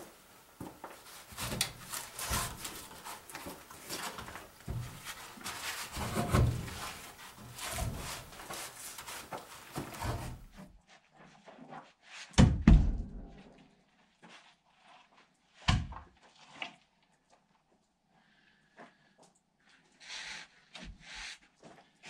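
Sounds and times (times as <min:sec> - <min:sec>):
wooden logs knocking and clattering: 0:00.6 - 0:10.6.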